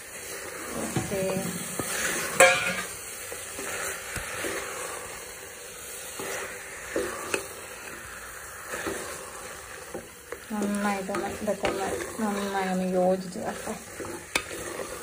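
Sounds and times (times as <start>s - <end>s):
meat sizzling in a pot: 0.0s - 15.0s
spatula stirring: 0.0s - 15.0s.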